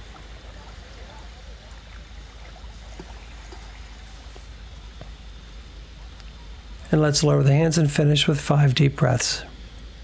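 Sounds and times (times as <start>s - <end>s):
small waves lapping on sand: 0.0s - 5.8s.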